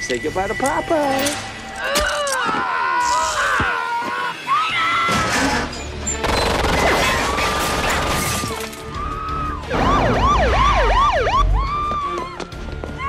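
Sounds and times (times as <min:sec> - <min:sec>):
police siren: 0:09.1 - 0:12.3.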